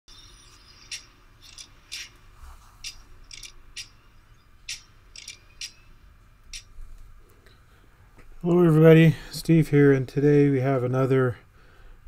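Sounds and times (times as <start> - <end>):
sharp high clicks: 0.1 - 2.2, 2.8 - 4.0, 4.6 - 6.7
faint low hum: 0.1 - 12.0.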